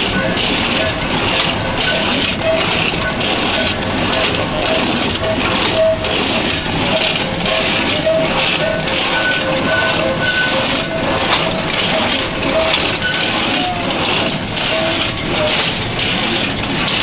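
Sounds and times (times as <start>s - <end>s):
cashew cutter machine crunching nuts: 0.0s - 17.0s.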